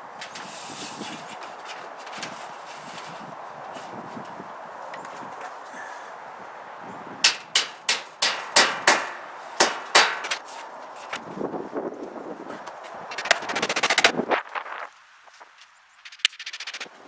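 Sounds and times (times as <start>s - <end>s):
hammer striking nails: 7.2s - 10.4s
fast run of small clicks: 13.1s - 14.7s, 16.0s - 16.9s.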